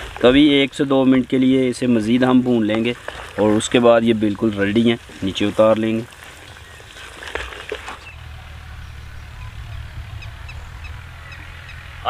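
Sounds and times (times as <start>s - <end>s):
birds chirping: 0.0s - 12.0s
low steady hum: 6.1s - 12.0s.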